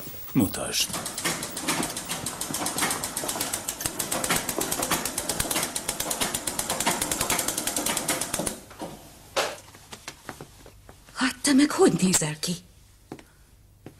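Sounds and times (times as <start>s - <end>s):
sewing machine clattering: 0.8s - 8.6s.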